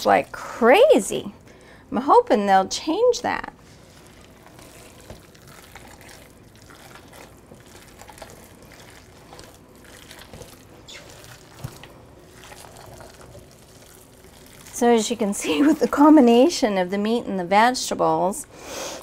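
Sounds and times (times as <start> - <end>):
wet squishing of kneaded meat: 3.6 - 18.5.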